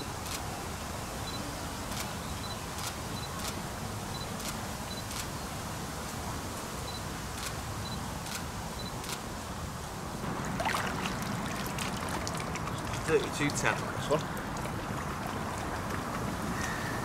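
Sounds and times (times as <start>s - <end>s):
water splashing and trickling: 10.2s - 17.0s.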